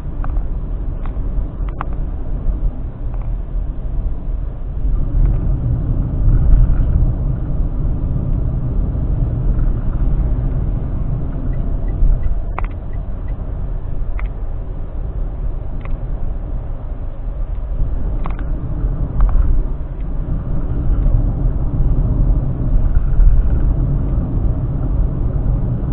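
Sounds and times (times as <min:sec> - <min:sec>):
car cabin road rumble: 0:00.0 - 0:25.9.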